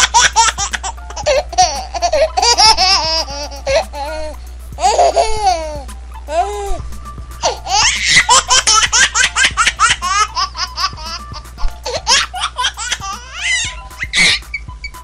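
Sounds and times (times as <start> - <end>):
small child giggling: 0.0 - 6.8, 11.9 - 15.0.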